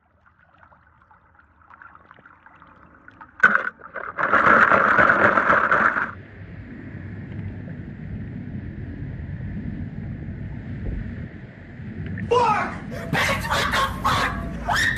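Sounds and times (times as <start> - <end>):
steady low rumble: 6.1 - 14.8.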